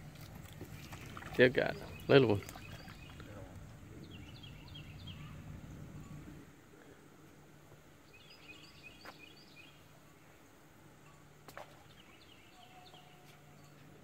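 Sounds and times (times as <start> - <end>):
small bird chirping: 1.8 - 3.4, 4.0 - 6.2.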